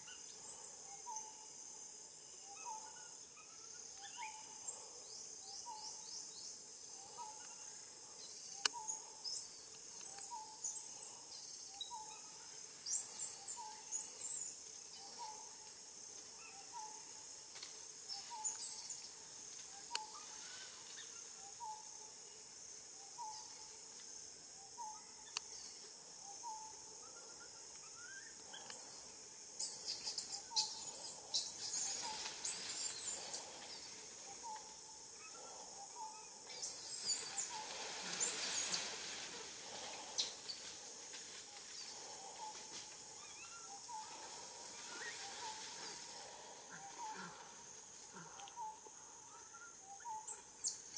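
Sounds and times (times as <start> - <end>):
high insect drone: 0.0 - 50.9
birds chirping: 18.1 - 22.0, 24.6 - 50.9.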